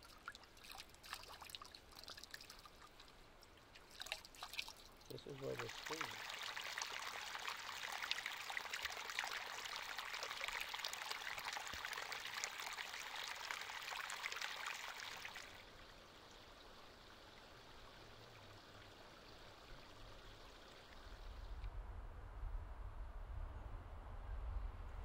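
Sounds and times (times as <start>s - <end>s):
creek water trickling and babbling: 0.0s - 21.7s
low rumble: 21.3s - 25.0s.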